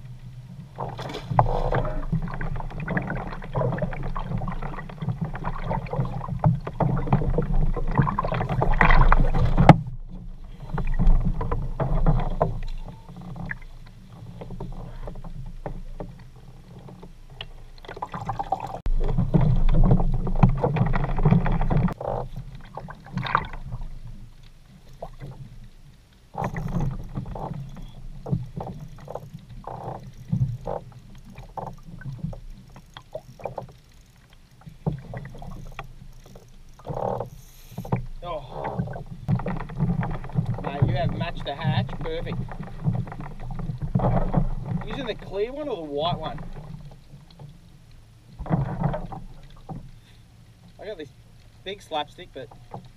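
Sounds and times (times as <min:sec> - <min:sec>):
water lapping against hull: 0:00.0 - 0:52.9.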